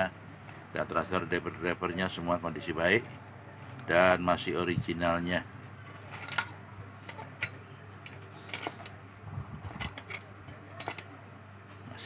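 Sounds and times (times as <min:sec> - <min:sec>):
steady low hum: 0:00.0 - 0:12.0
small tools clicking and tapping: 0:05.9 - 0:09.0, 0:09.7 - 0:11.2.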